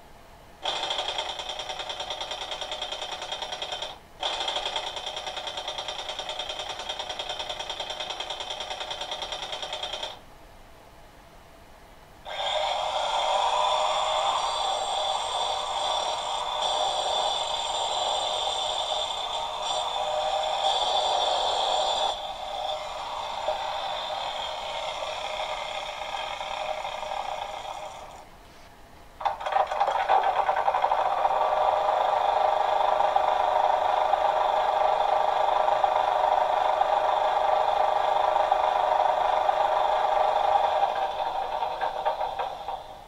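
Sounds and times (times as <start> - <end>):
angle grinder sound from loudspeaker: 12.3 - 28.2.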